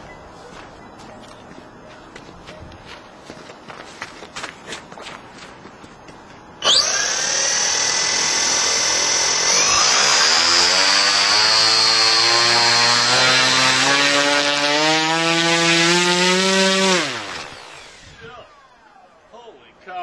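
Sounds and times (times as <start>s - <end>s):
electric motor whine: 6.6s - 19.0s.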